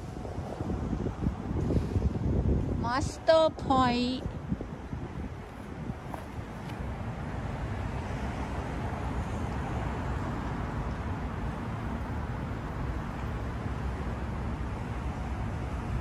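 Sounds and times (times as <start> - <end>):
city traffic rumble: 0.0 - 16.0.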